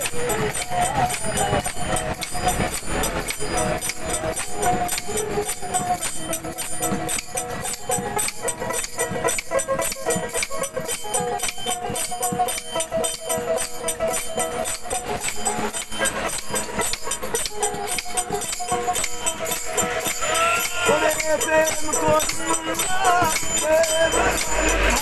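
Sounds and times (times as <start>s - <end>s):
plucked lute: 0.0s - 25.0s
small hand cymbals: 0.0s - 25.0s
wooden clappers beat: 0.0s - 25.0s
man singing: 20.0s - 25.0s.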